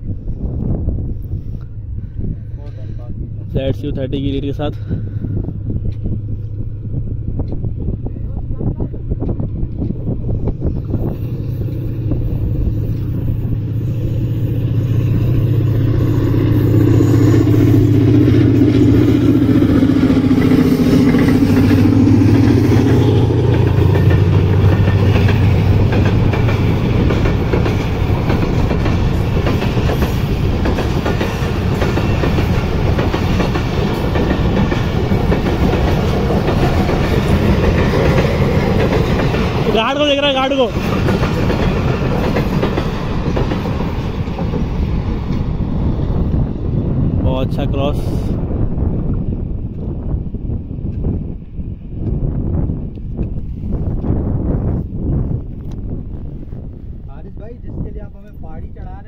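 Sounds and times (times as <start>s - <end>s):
diesel locomotive engine hum: 0.0s - 59.0s
train wheels clacking on rails: 9.2s - 46.4s.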